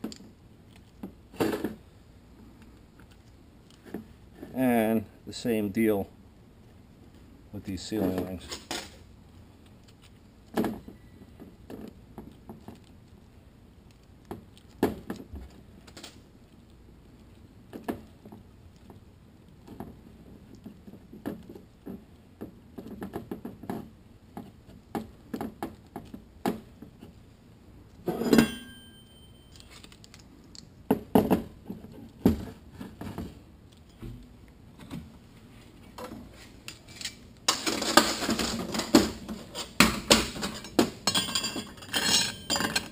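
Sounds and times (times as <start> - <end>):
sharp ringing metal clink: 28.2 - 29.6
metal clatter: 36.9 - 42.9.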